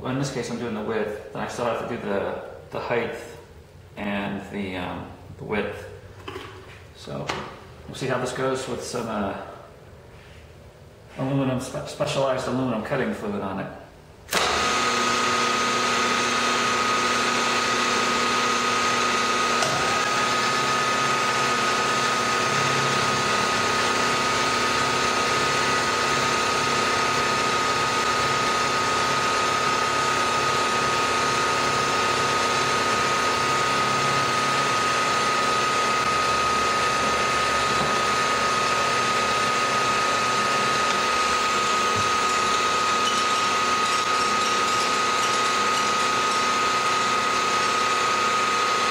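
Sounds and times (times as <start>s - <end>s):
mill cutting aluminum: 14.3s - 48.9s
milling machine whining: 14.3s - 48.9s.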